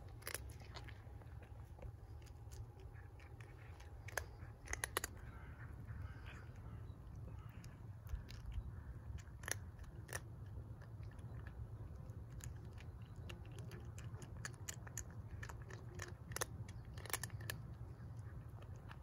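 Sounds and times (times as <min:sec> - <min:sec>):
cat crunching dry kibble: 0:00.0 - 0:19.0.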